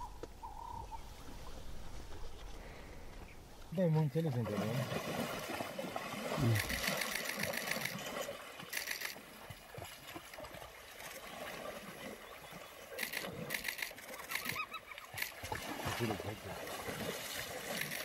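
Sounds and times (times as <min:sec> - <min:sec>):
water sloshing: 0:03.2 - 0:18.0
wild dogs twittering calls: 0:14.0 - 0:15.3.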